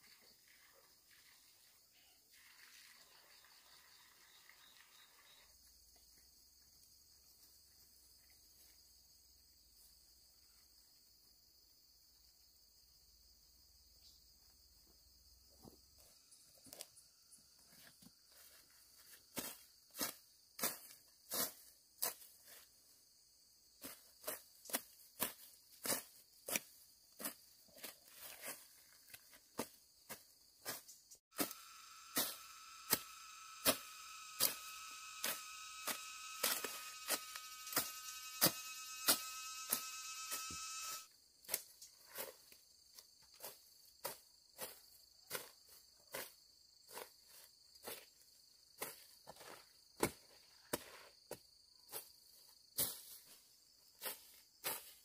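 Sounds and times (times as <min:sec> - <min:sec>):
insects buzzing: 0:00.0 - 0:11.6, 0:28.9 - 0:41.1
loud pitched insect buzz: 0:31.3 - 0:41.1.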